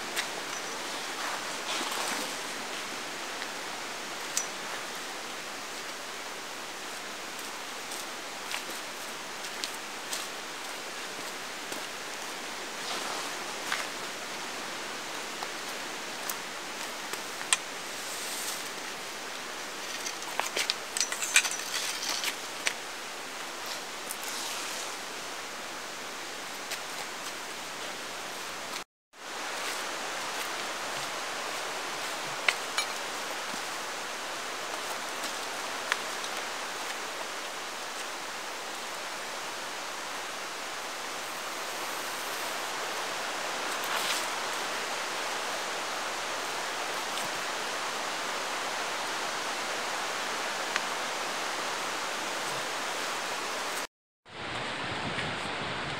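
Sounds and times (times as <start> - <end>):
tarp rustling: 0.0 - 3.0, 12.8 - 14.1, 17.9 - 19.0, 23.6 - 25.1.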